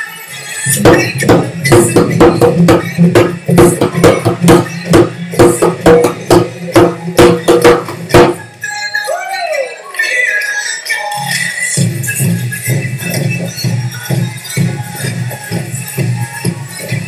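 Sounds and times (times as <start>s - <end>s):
hand drum played rhythmically: 0.8s - 8.4s.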